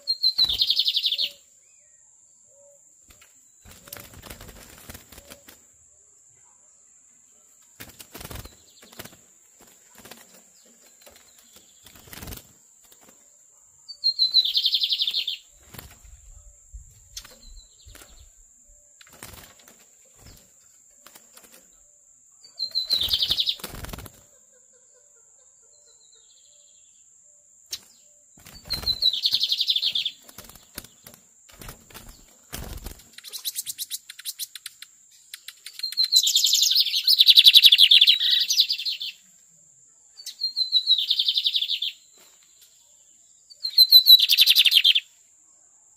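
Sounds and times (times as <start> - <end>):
bird singing short phrases: 0.0 - 4.1, 13.9 - 15.5, 21.8 - 23.8, 27.7 - 30.5, 33.1 - 39.2, 40.1 - 42.1, 43.5 - 45.1
wing flutters: 3.1 - 5.7, 7.8 - 13.4, 14.5 - 16.4, 19.0 - 21.9, 22.7 - 24.4, 27.7 - 37.6.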